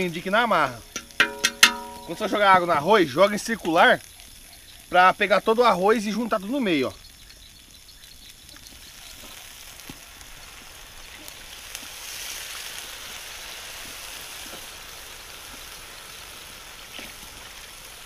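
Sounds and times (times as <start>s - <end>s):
rice sizzling in a pan: 0.0s - 18.0s
water poured into hot pan: 8.8s - 18.0s.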